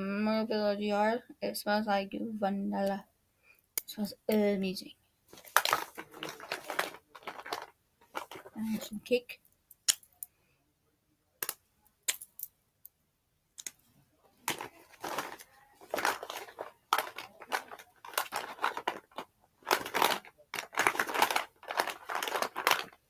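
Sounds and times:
bag rustling and crinkling: 5.3 - 9.0, 14.4 - 23.0.

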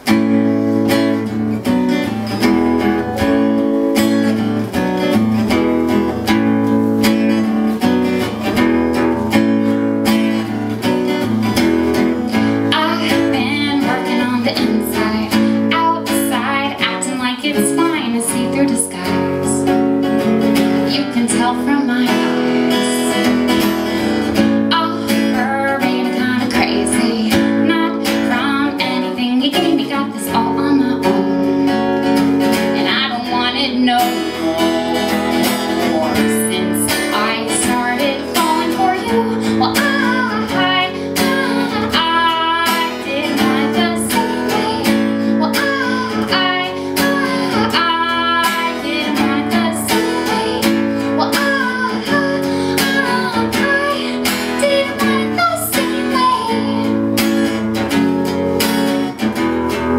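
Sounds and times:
acoustic guitar strumming chords: 0.0 - 59.9.

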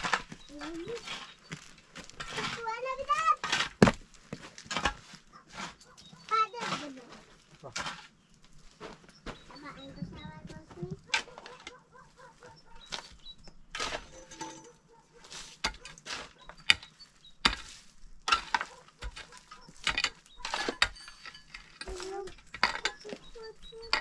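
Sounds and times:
shovel scraping stony soil: 0.0 - 9.9, 12.4 - 24.0.

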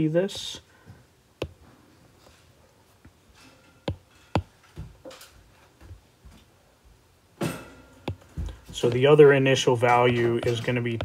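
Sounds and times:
stylus tapping on glass screen: 3.9 - 4.5, 8.1 - 9.0.

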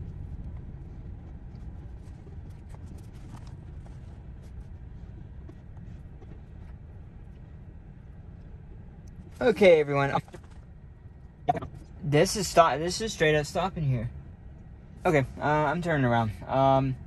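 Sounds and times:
freight train rumble: 0.0 - 8.0.

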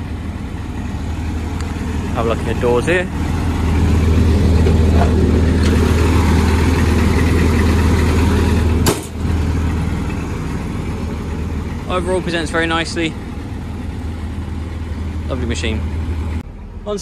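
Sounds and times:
diesel engine idling: 0.0 - 17.0
engine door shutting knock: 8.8 - 9.2.

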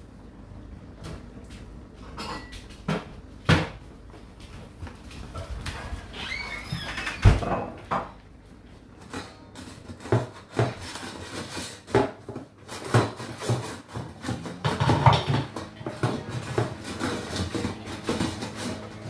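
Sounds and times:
dishwasher water jets sloshing: 12.5 - 19.0.

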